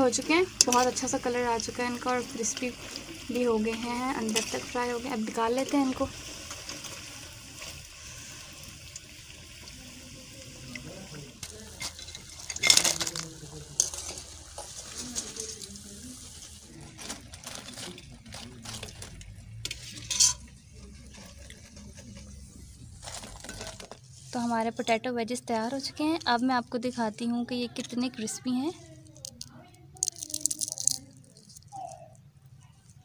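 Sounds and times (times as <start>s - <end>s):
hot oil sizzling: 0.0s - 17.0s, 19.0s - 22.0s
skimmer scraping a pan: 0.1s - 8.6s, 18.7s - 24.4s.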